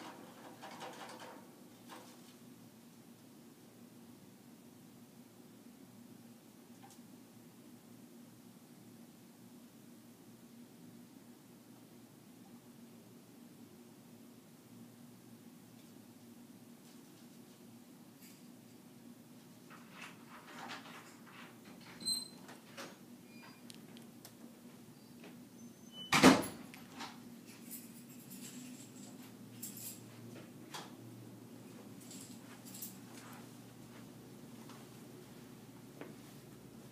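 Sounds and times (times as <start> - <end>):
faint steady hum: 0.0 - 36.9.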